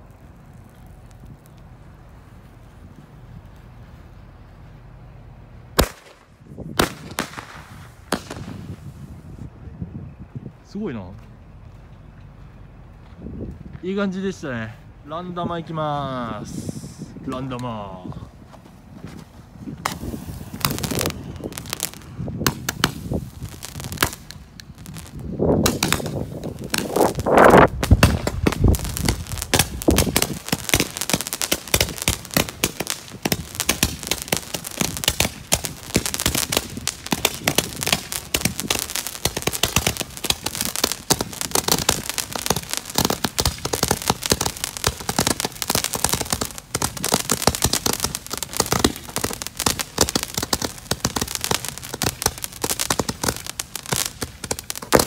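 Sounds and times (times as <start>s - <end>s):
firework crackling pops: 0.0s - 3.7s, 5.8s - 9.5s, 19.0s - 55.0s
firework fuse sputtering: 0.0s - 4.5s, 18.8s - 55.0s
firework burst: 19.8s - 55.0s.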